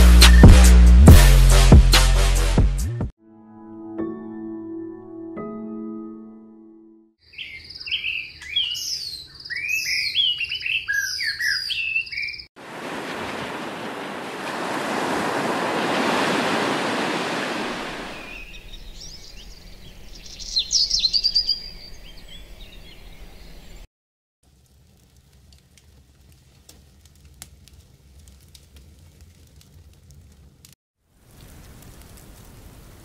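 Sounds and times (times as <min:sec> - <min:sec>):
birds chirping: 0:07.2 - 0:12.5, 0:15.0 - 0:23.9
sea waves on shore: 0:12.6 - 0:18.7.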